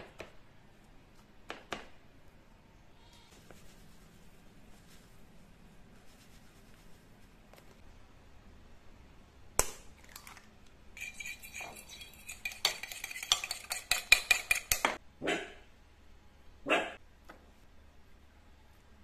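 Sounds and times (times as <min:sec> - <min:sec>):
fork beating egg on plate: 0:11.0 - 0:15.0.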